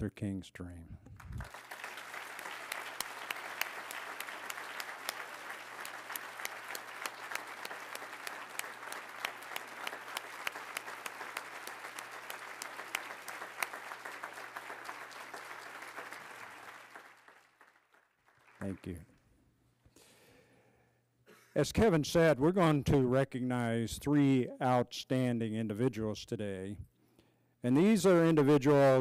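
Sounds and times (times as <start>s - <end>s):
audience applauding: 1.2s - 19.1s.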